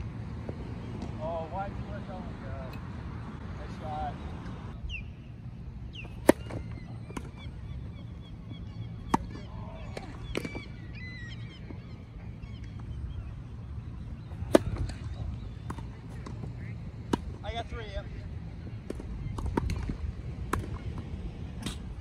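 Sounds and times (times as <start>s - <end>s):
high bird calls: 3.9s - 16.1s
tennis ball struck by racket: 6.2s - 6.6s, 14.4s - 15.0s.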